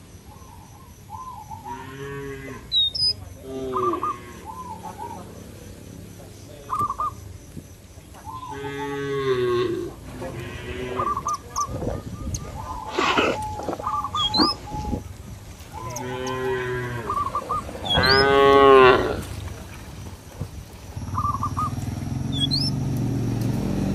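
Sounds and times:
cattle mooing: 1.7 - 2.7, 3.4 - 4.6, 8.5 - 11.2, 15.8 - 19.3.

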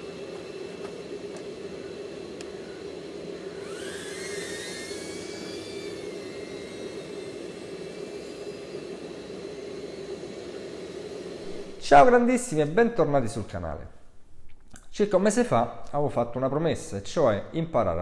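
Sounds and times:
drone motors whining: 0.0 - 12.2.

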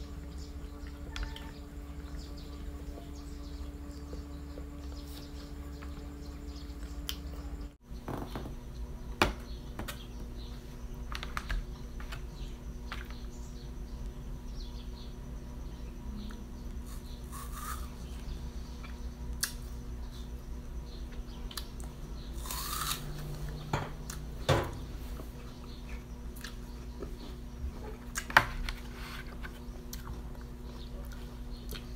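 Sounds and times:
steady low hum: 0.0 - 31.9.

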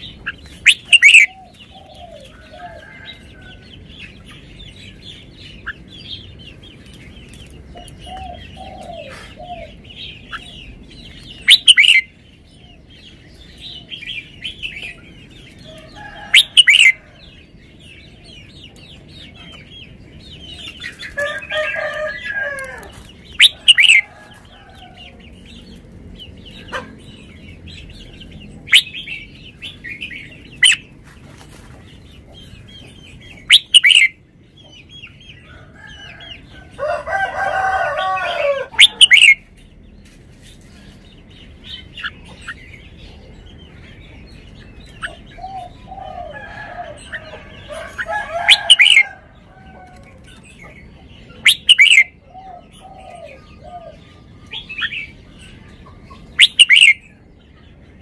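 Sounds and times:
bird singing sharp phrases: 0.0 - 2.4, 4.0 - 17.1, 32.1 - 35.2, 50.3 - 58.0
background bird chatter: 0.0 - 58.0.

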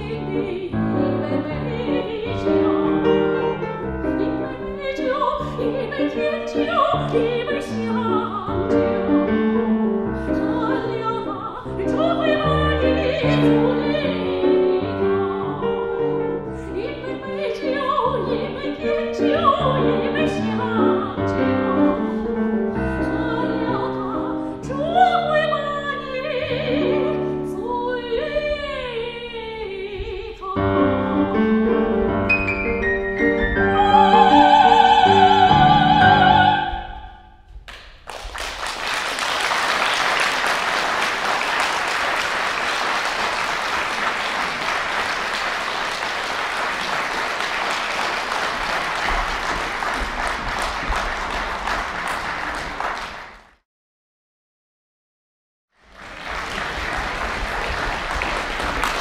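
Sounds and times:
piano accompaniment: 0.0 - 37.1
soprano singing: 0.0 - 37.2
audience applause: 38.0 - 53.5, 55.9 - 59.0.

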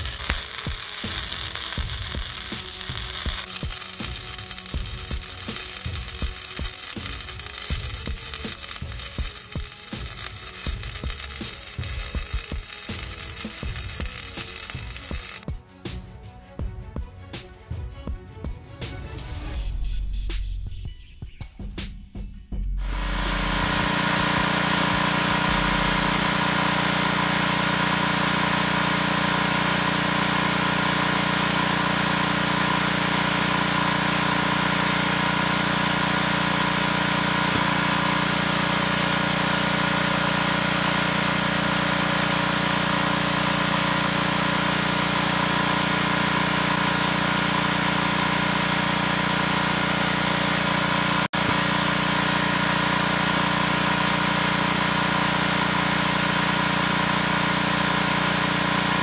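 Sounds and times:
tractor engine idling: 22.8 - 59.0.

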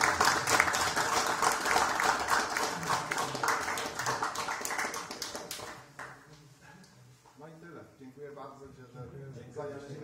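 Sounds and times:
people clapping: 0.0 - 6.5.

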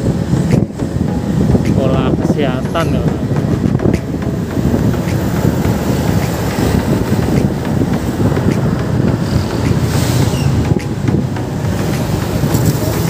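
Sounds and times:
road noise: 0.0 - 13.0
wind rushing over microphone: 0.0 - 13.0
motorcycle engine: 3.2 - 13.0.

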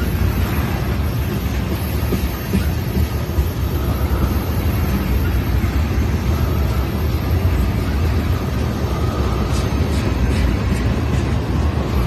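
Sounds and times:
train wheels rumbling on rail: 0.0 - 12.0.

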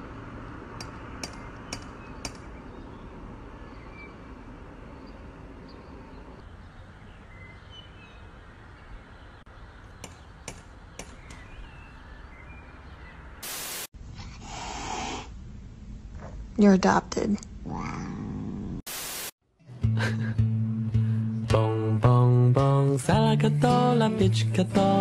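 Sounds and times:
faint bird chirps: 1.7 - 4.3
outdoor hiss: 13.4 - 16.0, 18.9 - 19.4
cat hissing: 14.2 - 15.3.

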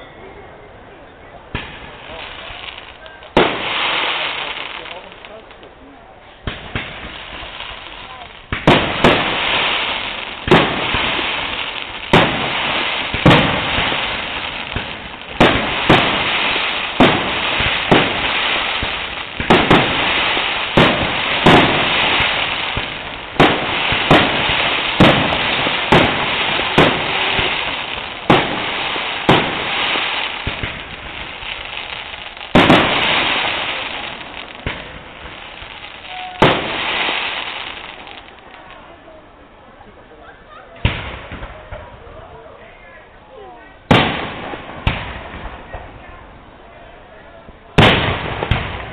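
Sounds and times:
firework shells bursting: 6.5 - 38.4.

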